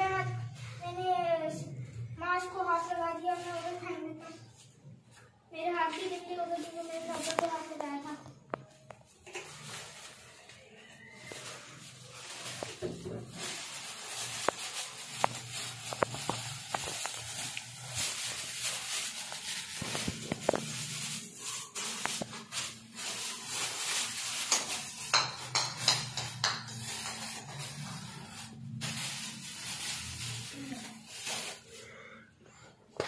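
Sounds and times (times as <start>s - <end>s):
plastic bag rustling: 5.9s - 32.1s
items clicking and knocking: 14.2s - 17.8s, 19.3s - 21.2s, 24.2s - 27.8s.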